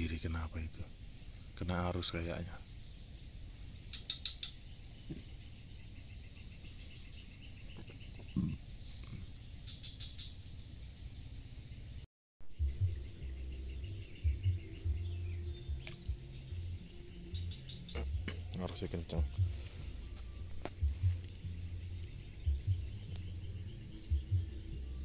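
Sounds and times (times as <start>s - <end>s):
insects droning: 0.0s - 25.0s
bird chirps: 1.4s - 25.0s
low rumbling thumps: 12.5s - 25.0s.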